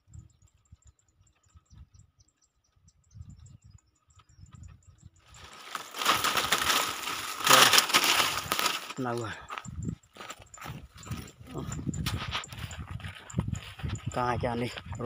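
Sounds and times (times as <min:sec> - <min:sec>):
wind noise: 0:00.0 - 0:01.0, 0:01.6 - 0:15.0
leaves rustling: 0:05.3 - 0:09.4.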